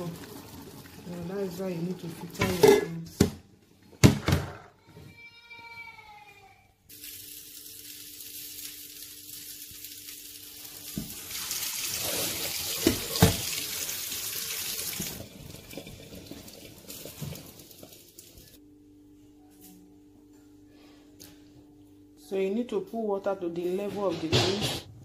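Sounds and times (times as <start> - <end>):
water running through a colander: 0.0 - 3.0, 6.9 - 18.6.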